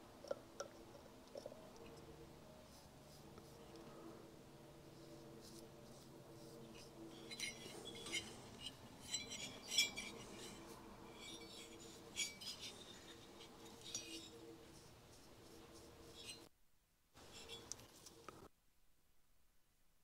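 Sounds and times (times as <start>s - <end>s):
faint steady hum: 0.0s - 20.0s
metal brush clinking on metal: 6.4s - 14.8s, 15.7s - 16.5s.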